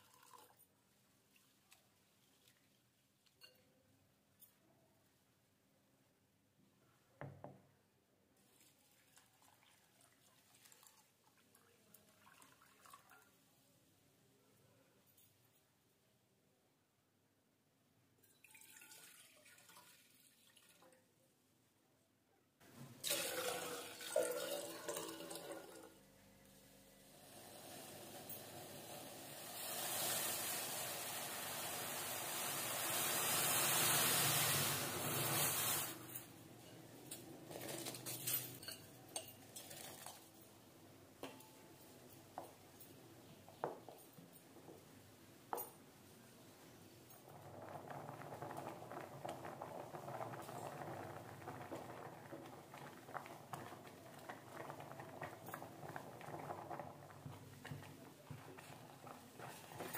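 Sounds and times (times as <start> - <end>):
milk trickling into a pot: 0.0 - 3.6, 8.4 - 13.4, 18.2 - 21.1, 22.8 - 26.0, 27.0 - 36.3, 38.6 - 40.6, 47.1 - 59.9
rice sliding into a pot: 27.2 - 36.1.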